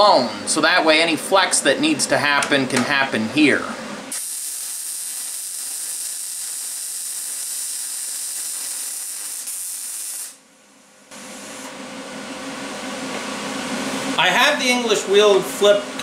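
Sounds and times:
welding arc hissing: 0:04.0 - 0:10.4, 0:11.1 - 0:11.7.

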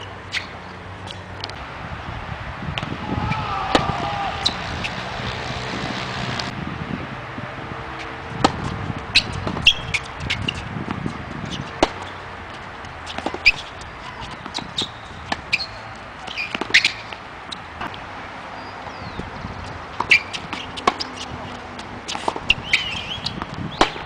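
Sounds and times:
shoe squeaks on court: 0:00.3 - 0:01.2, 0:09.2 - 0:10.7, 0:13.1 - 0:17.1, 0:20.1 - 0:21.4, 0:22.1 - 0:24.0
rackets striking tennis ball: 0:02.7 - 0:06.6, 0:07.9 - 0:18.0, 0:19.7 - 0:24.0
tennis ball bouncing: 0:02.7 - 0:06.6, 0:08.0 - 0:18.0, 0:19.6 - 0:24.0.

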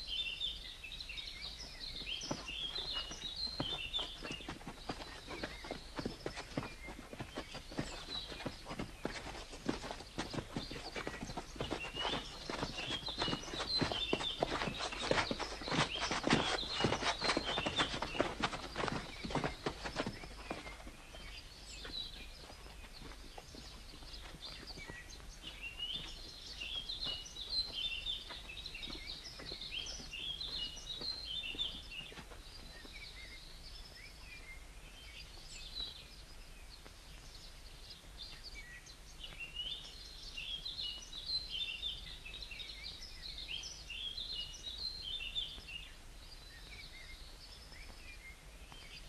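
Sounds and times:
small birds chirping and trilling: 0:00.0 - 0:49.0
low steady hiss: 0:31.8 - 0:49.0.

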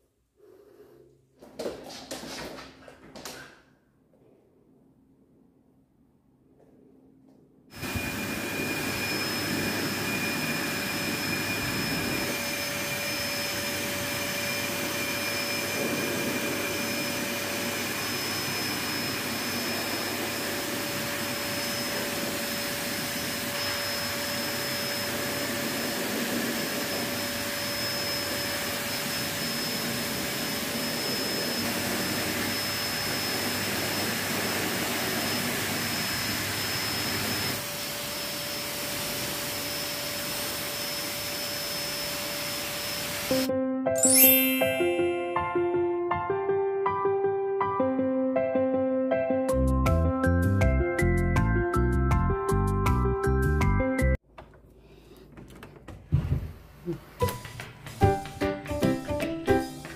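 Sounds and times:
blow dryer running: 0:07.7 - 0:43.5.

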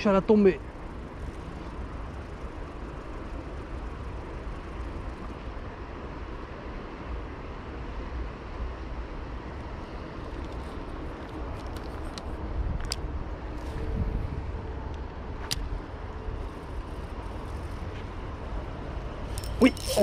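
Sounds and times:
wind on microphone: 0:09.7 - 0:20.0.

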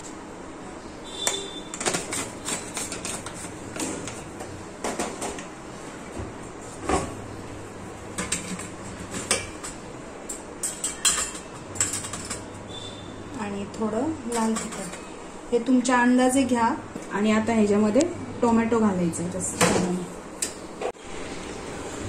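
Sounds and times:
steel kitchen containers clinking: 0:08.2 - 0:12.5, 0:14.3 - 0:15.1.

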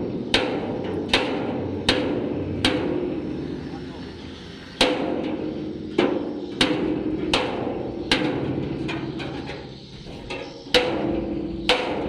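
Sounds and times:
hammer striking steel plate: 0:00.3 - 0:03.2.

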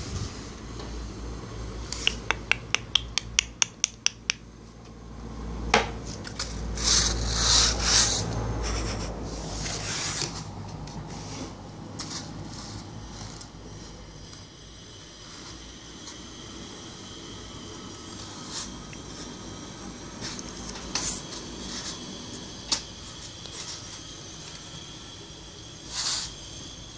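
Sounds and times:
brush scrubbing a floor mat: 0:06.4 - 0:14.2.

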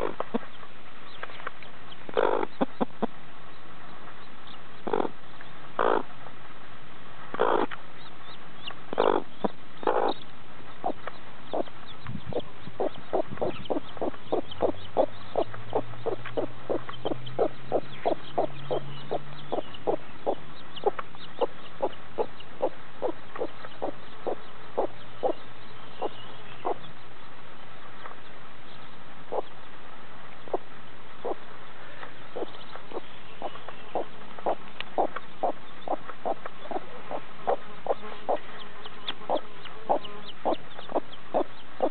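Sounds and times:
hen clucking: 0:00.0 - 0:00.6, 0:02.1 - 0:03.1, 0:04.8 - 0:05.2, 0:05.8 - 0:06.1, 0:07.3 - 0:07.7, 0:08.9 - 0:10.2, 0:10.8 - 0:25.4, 0:26.0 - 0:26.9, 0:29.3 - 0:29.5, 0:31.2 - 0:31.4, 0:32.4 - 0:41.9.

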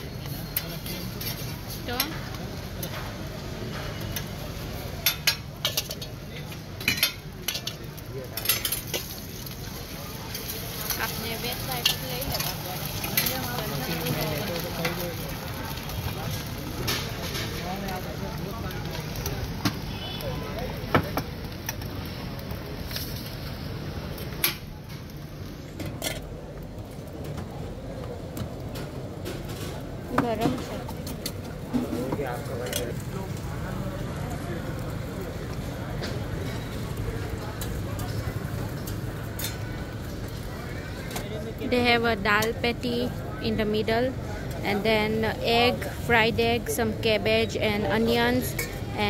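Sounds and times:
metal spatula scraping griddle: 0:00.3 - 0:01.8
spatula clinking on griddle: 0:05.0 - 0:07.8, 0:08.4 - 0:09.2.

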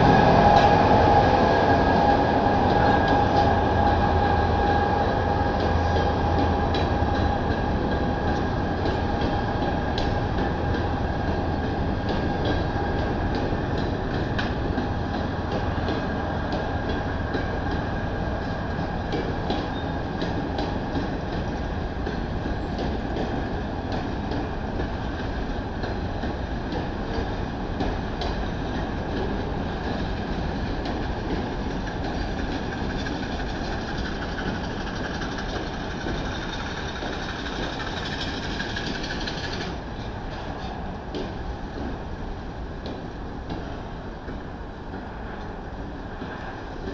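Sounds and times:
freight train rumbling past: 0:00.0 - 0:46.9
wheel clicks over rail joints: 0:30.8 - 0:41.9.

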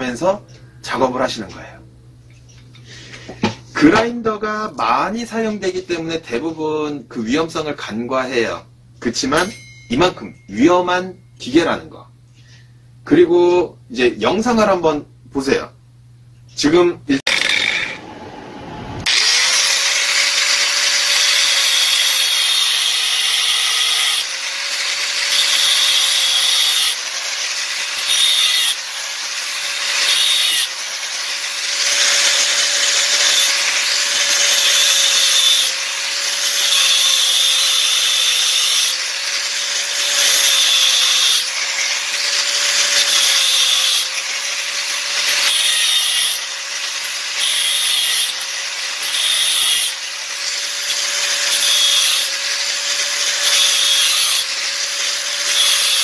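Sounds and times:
angle grinder motor whine: 0:17.2 - 0:56.0
grinder cutting steel pipe: 0:17.3 - 0:56.0.

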